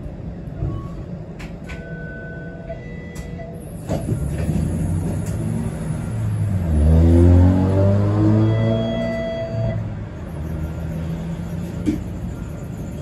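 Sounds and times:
streetcar rumbling on rails: 0:00.0 - 0:13.0.

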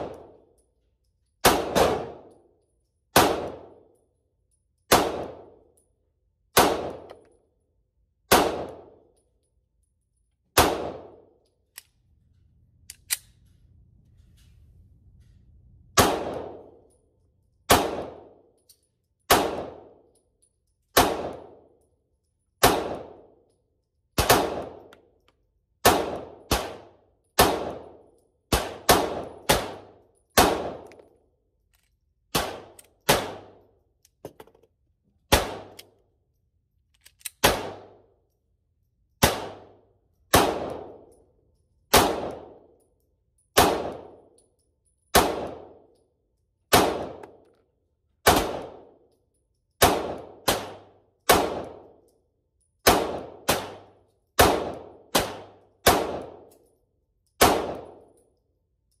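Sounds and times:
pistol shots: 0:01.4 - 0:02.4, 0:03.1 - 0:03.9, 0:04.9 - 0:05.6, 0:06.5 - 0:07.2, 0:08.3 - 0:09.1, 0:10.5 - 0:11.4, 0:16.0 - 0:16.8, 0:17.6 - 0:18.4, 0:19.3 - 0:20.0, 0:21.0 - 0:21.7, 0:22.6 - 0:23.3, 0:24.2 - 0:24.9, 0:25.8 - 0:31.1, 0:32.3 - 0:33.6, 0:35.3 - 0:35.9, 0:37.4 - 0:38.0, 0:39.2 - 0:41.1, 0:41.9 - 0:42.7, 0:43.6 - 0:44.2, 0:45.1 - 0:45.9, 0:46.7 - 0:47.4, 0:48.2 - 0:49.0, 0:49.8 - 0:52.0, 0:52.8 - 0:56.5, 0:57.4 - 0:58.2.

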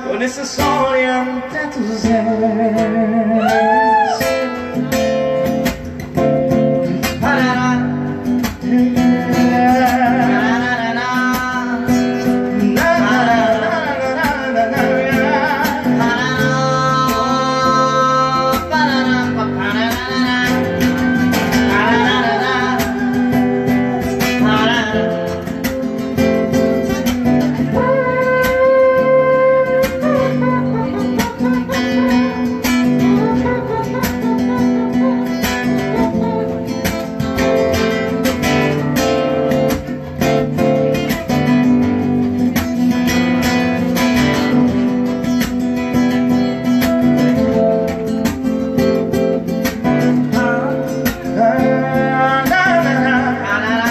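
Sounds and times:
person singing a ballad: 0:00.0 - 0:04.7, 0:07.1 - 0:25.8, 0:49.9 - 0:53.9
acoustic guitar strumming: 0:00.0 - 0:53.9.

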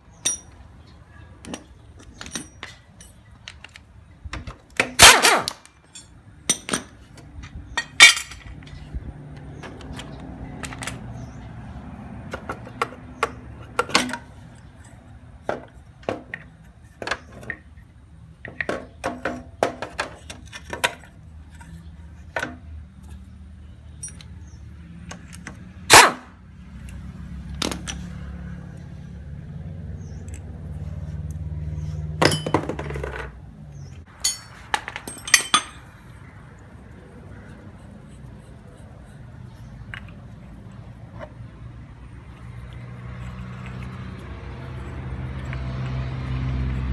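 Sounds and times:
metallic clinks of hand tools: 0:00.2 - 0:00.6, 0:24.0 - 0:24.4, 0:34.2 - 0:35.9.

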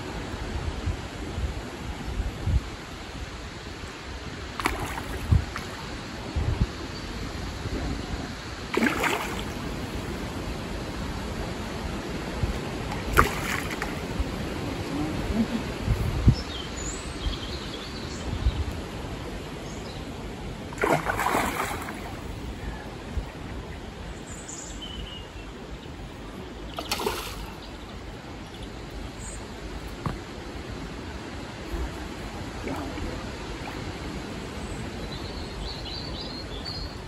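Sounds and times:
fish splashing in water: 0:04.6 - 0:05.8, 0:08.7 - 0:09.8, 0:13.0 - 0:14.1, 0:20.8 - 0:22.3, 0:26.8 - 0:27.6.

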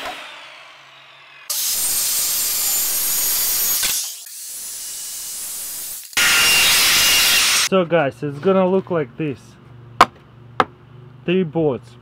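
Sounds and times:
circular saw cutting plywood: 0:00.0 - 0:07.7.

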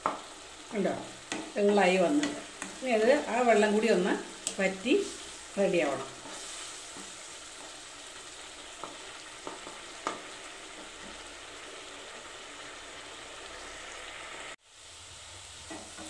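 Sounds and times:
spatula knocking on pan: 0:00.0 - 0:00.3, 0:08.8 - 0:11.2
food bubbling and sizzling in pan: 0:00.0 - 0:16.0
wooden spatula stirring: 0:04.2 - 0:11.3.

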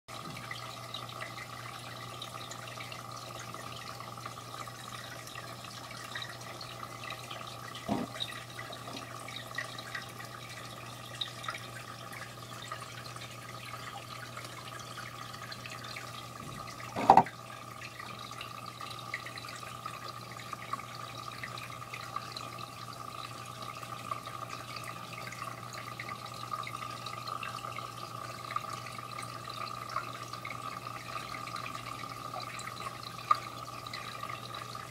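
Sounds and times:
water trickling and dripping: 0:00.1 - 0:34.9
short knocks: 0:17.0 - 0:17.3.

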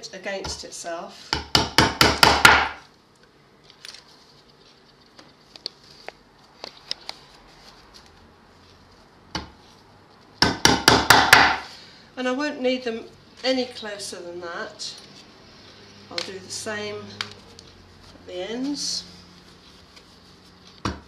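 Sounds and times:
hammer tapping tacks into wood: 0:01.3 - 0:02.8, 0:10.4 - 0:11.6.

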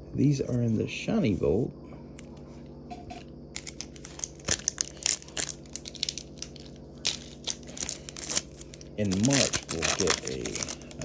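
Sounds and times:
foil wrapper crinkling and tearing: 0:03.5 - 0:11.0.

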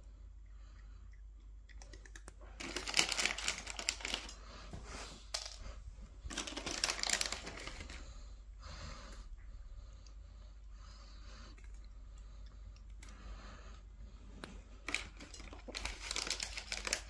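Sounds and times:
crisp crinkling and rustling: 0:01.9 - 0:08.2, 0:14.7 - 0:17.0.

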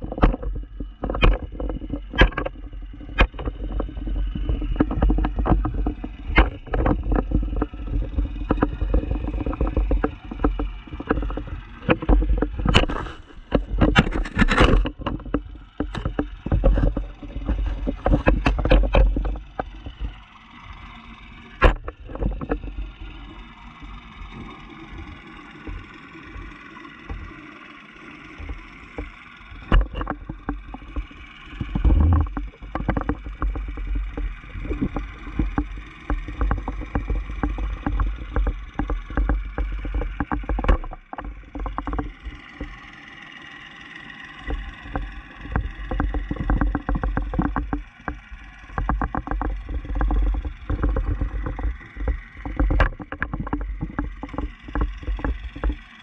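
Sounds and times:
exhaled bubbles streaming: 0:00.0 - 0:43.1, 0:44.4 - 0:56.0
muffled underwater rumble: 0:00.0 - 0:56.0
camera housing knocking: 0:10.5 - 0:19.0.

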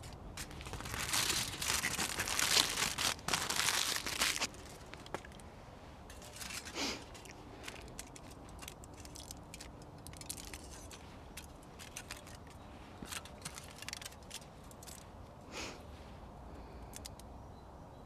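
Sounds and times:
knife cutting aluminium foil: 0:00.0 - 0:05.4, 0:06.1 - 0:12.5.

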